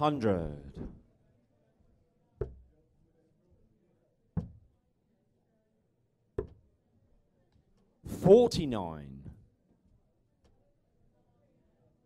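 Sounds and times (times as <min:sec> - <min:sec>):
darts thudding into dartboard: 0:04.4 - 0:04.6, 0:06.4 - 0:06.6.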